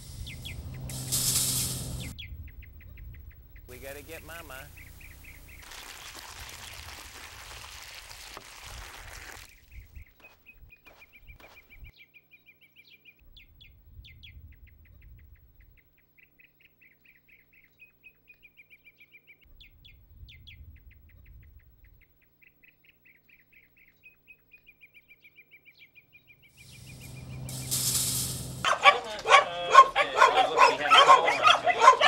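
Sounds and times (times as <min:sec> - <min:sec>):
low rumble of wind: 0:00.0 - 0:05.6, 0:09.5 - 0:12.0, 0:13.2 - 0:16.0, 0:19.5 - 0:22.2, 0:26.5 - 0:28.7
small bird chirping and trilling: 0:00.1 - 0:01.0, 0:09.4 - 0:27.7.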